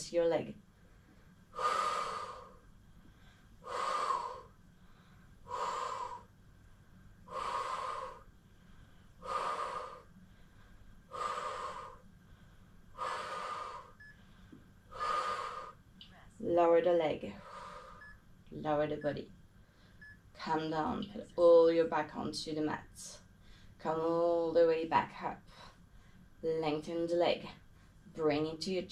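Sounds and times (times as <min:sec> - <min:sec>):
woman breathing hard: 0:00.8 - 0:06.4, 0:07.2 - 0:15.8, 0:17.4 - 0:18.2.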